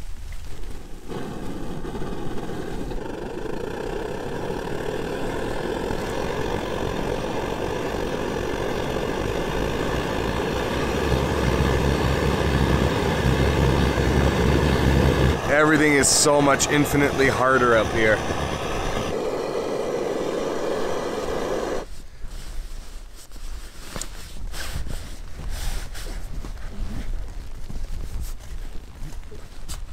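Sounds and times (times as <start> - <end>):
camp stove burning: 0.0 - 22.4.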